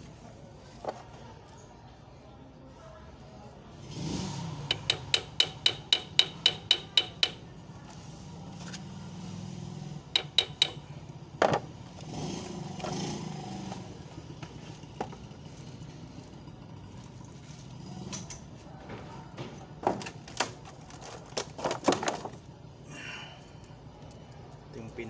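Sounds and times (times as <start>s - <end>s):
hammer tapping on metal: 4.7s - 7.4s, 10.2s - 10.8s.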